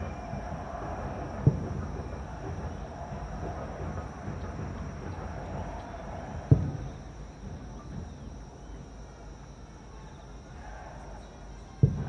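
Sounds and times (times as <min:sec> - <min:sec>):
distant firework boom: 0:00.0 - 0:08.3, 0:11.8 - 0:12.0
steady background noise: 0:00.0 - 0:12.0.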